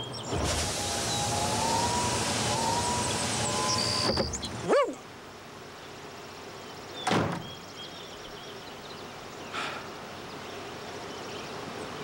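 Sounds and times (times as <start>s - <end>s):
sliding tone: 0.3s - 4.6s
car door slam: 7.0s - 7.6s.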